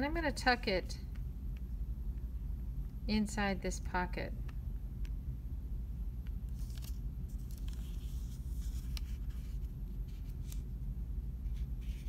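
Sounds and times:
steady low hum: 0:00.0 - 0:12.0
paper rustling and crinkling: 0:06.5 - 0:10.6.

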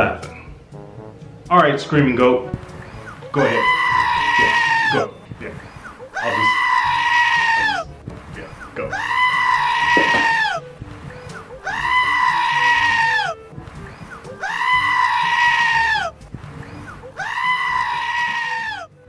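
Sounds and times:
goat screaming: 0:03.0 - 0:05.2, 0:06.0 - 0:07.9, 0:08.9 - 0:10.7, 0:11.5 - 0:16.2, 0:16.8 - 0:18.9.

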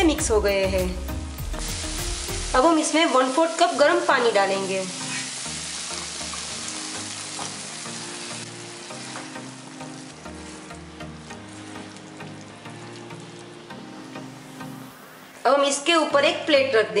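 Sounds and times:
beans sizzling: 0:00.0 - 0:15.6
water poured into hot wok: 0:01.4 - 0:15.4
spatula stirring beans: 0:03.6 - 0:14.1.

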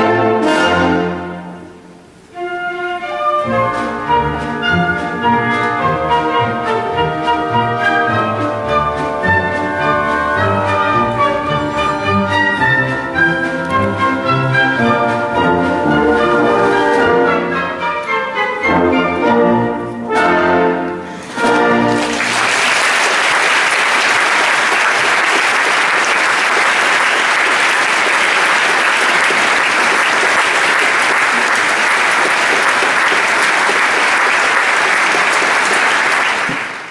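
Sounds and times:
loud orchestral chords: 0:00.0 - 0:23.0
orchestra playing: 0:00.0 - 0:36.6
audience applause: 0:21.2 - 0:36.9.

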